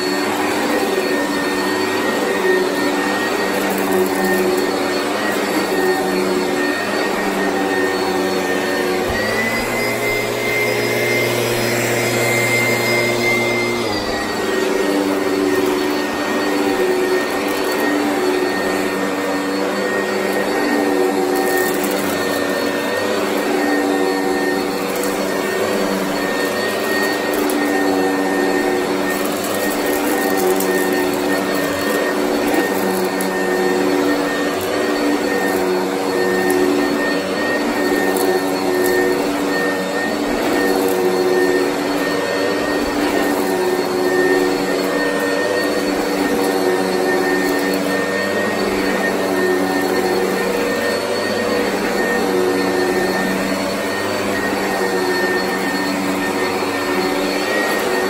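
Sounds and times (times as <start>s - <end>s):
vacuum cleaner motor whine: 0.0s - 58.0s.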